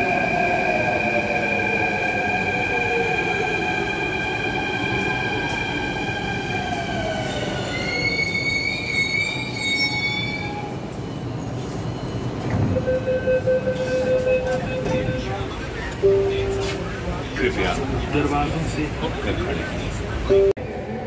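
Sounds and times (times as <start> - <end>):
high-pitched brake squeal: 7.5 - 10.9.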